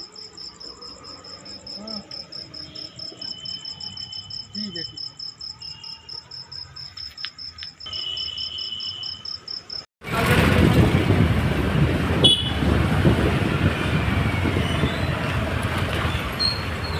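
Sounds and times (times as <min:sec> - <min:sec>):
crickets chirping: 0:00.0 - 0:09.9
vehicle engine and road noise: 0:09.4 - 0:16.9.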